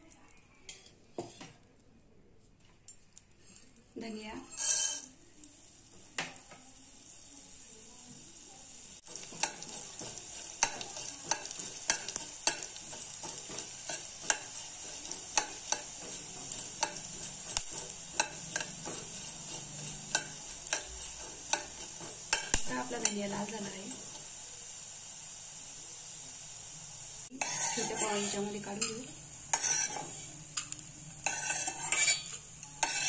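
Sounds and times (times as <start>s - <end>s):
spoon knocking and scraping pan: 0.7s - 1.6s, 4.4s - 5.1s, 9.0s - 24.2s, 27.3s - 33.0s
seeds sizzling in oil: 3.4s - 33.0s.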